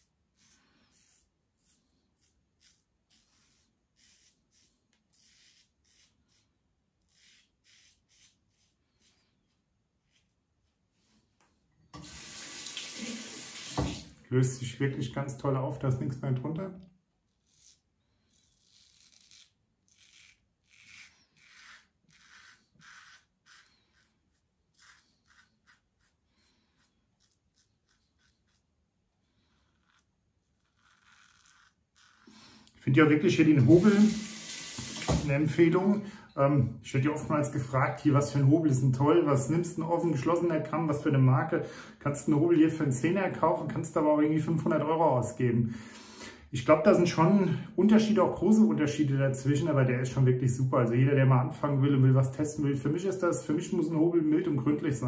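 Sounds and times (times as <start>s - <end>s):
razor scraping stubble: 0.0s - 10.8s, 17.3s - 32.7s.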